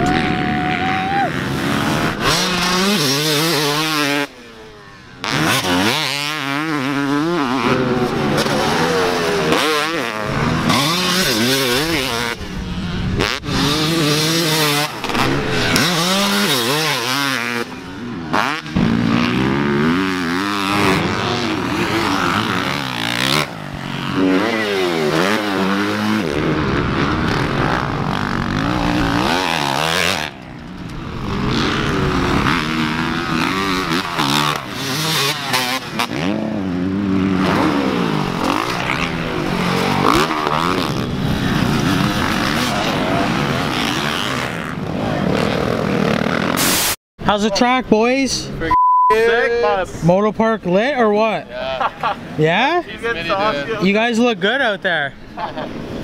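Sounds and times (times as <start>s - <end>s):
dirt bike engines revving: 0.0s - 56.0s.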